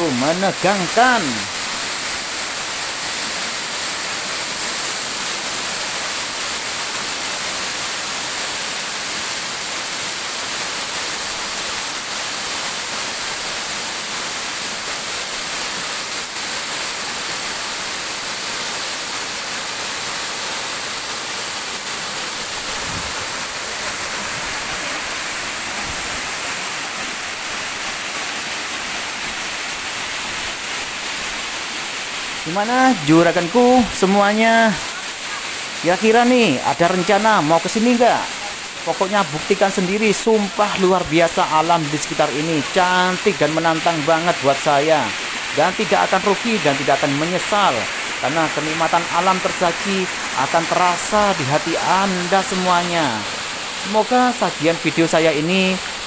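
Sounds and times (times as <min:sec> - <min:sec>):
waterfall rushing over rocks: 0:00.0 - 0:56.0.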